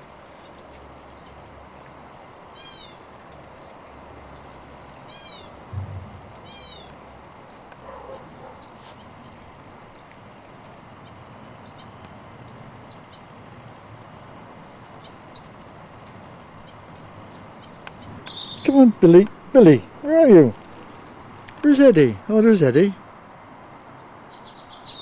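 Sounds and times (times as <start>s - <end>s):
thump: 5.7s - 6.6s
small ticks: 10.0s - 13.2s.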